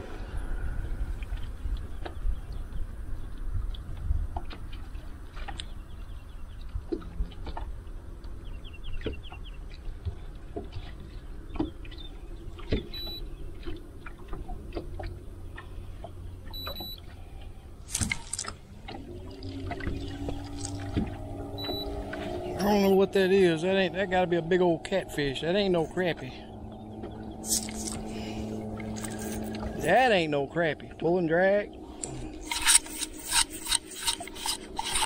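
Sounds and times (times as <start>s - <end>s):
steady low rumble: 0.0s - 8.8s, 9.7s - 34.8s
short high electronic beeps: 16.6s - 17.0s, 21.6s - 22.0s.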